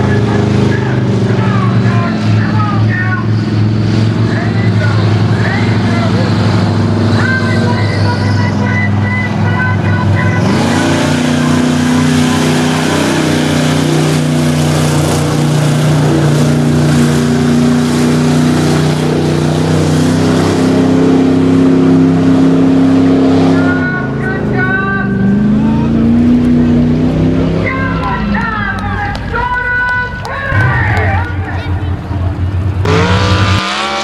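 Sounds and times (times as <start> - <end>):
truck engine revving: 0.0 - 34.0.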